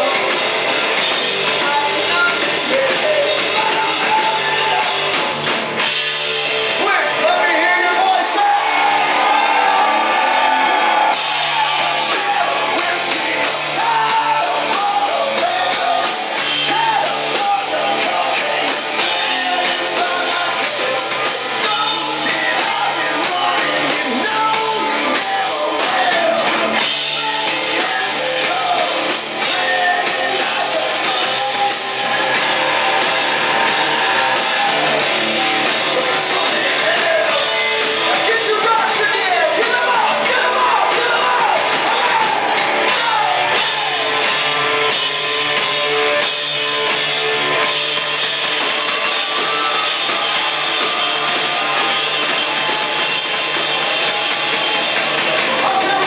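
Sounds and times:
drum kit: 0.0s - 56.0s
electric guitar: 0.0s - 56.0s
man singing: 1.4s - 5.1s, 11.7s - 32.4s, 35.7s - 44.1s, 55.6s - 56.0s.

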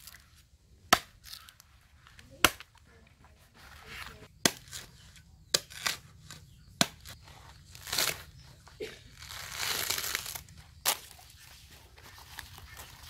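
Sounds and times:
knife striking coconut husk: 0.9s - 1.6s, 4.4s - 7.2s
coconut husk ripping: 3.9s - 11.3s.

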